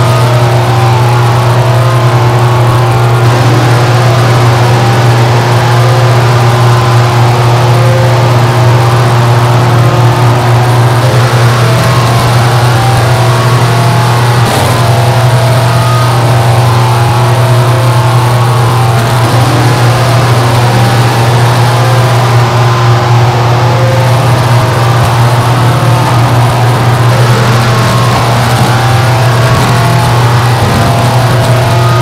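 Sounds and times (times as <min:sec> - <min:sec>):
dense distorted static: 0:00.0 - 0:32.0
heavy low drone: 0:00.0 - 0:32.0.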